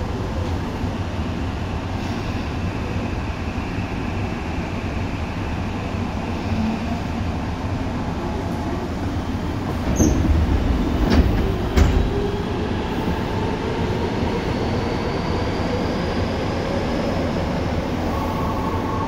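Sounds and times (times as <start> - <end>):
train wheels rumbling on rails: 0.0 - 18.8.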